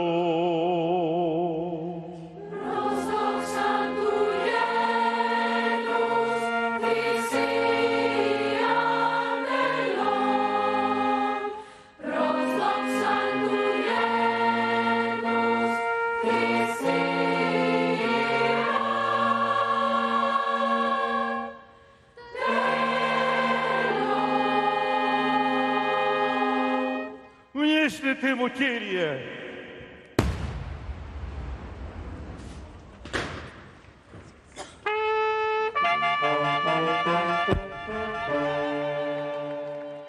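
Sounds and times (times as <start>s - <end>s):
man singing with vibrato: 0.0s - 2.4s, 27.6s - 30.0s
choir singing: 0.0s - 27.4s, 35.7s - 40.0s.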